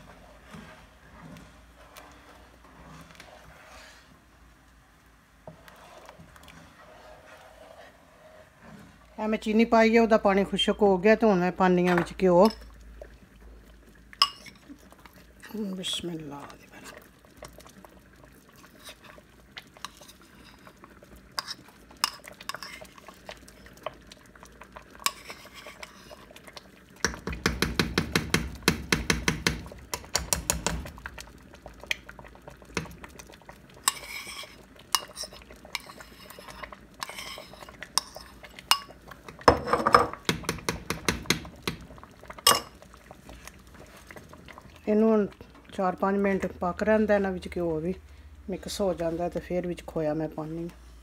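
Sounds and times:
metal spoon clinking on pot: 14.2s - 14.6s.

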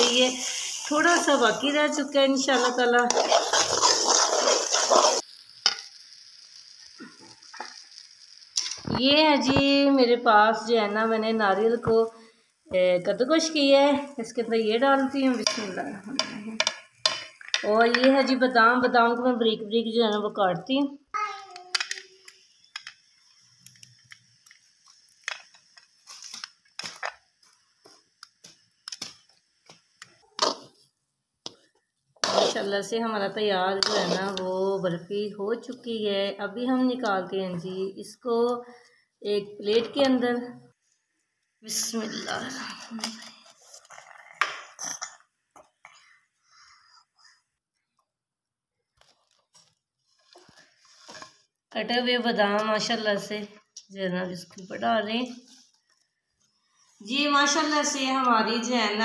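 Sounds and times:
metal spoon stirring and scraping: 0.0s - 8.9s, 32.2s - 34.5s
ghee sizzling: 0.0s - 20.6s, 21.4s - 38.2s, 56.4s - 59.0s.

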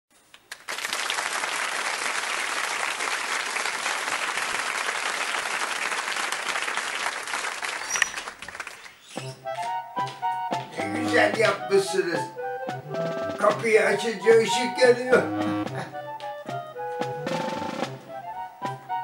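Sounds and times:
audience applause: 0.4s - 9.0s.

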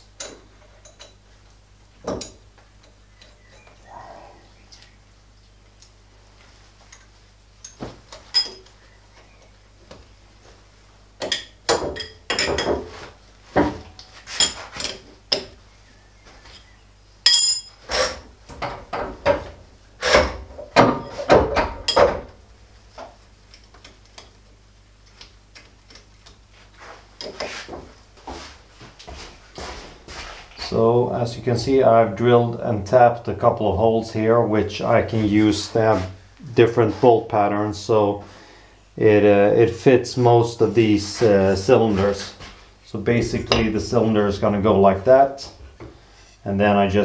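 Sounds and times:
spanner clanking on metal nuts: 17.3s - 19.4s, 20.0s - 22.3s.

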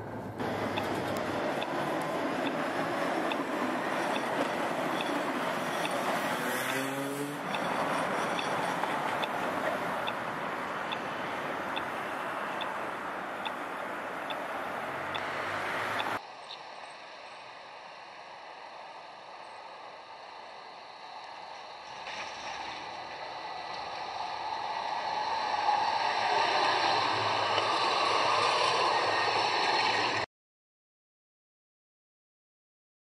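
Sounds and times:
traffic noise: 0.0s - 30.3s
tram running on street track: 0.0s - 30.3s
faint regular ticking: 11.7s - 12.8s.

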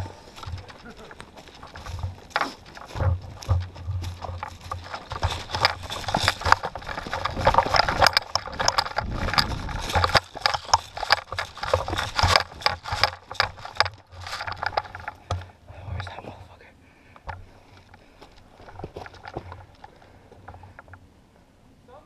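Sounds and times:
footsteps crunching through leaves: 0.0s - 15.3s
rifle rattling and knocking: 0.0s - 16.2s, 17.2s - 21.0s.

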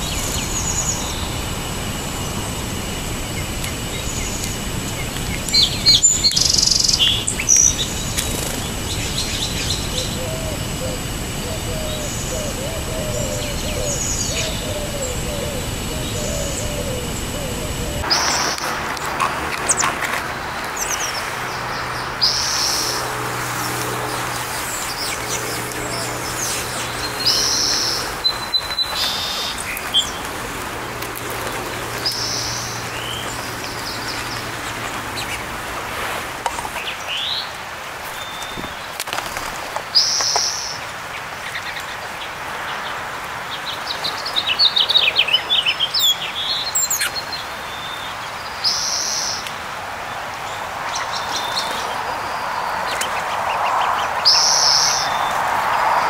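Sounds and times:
songbirds singing: 0.0s - 56.0s
bird chirps and twitters: 3.4s - 35.5s.

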